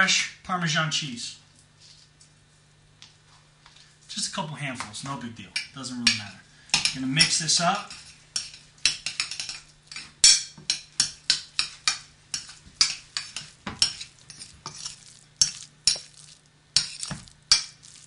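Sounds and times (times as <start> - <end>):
wet grainy stirring of rice: 11.2 - 18.0.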